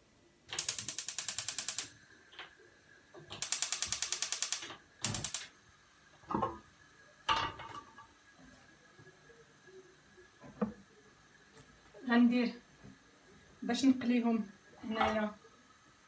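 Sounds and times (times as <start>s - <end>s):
gas igniter ticking: 3.3s - 5.5s.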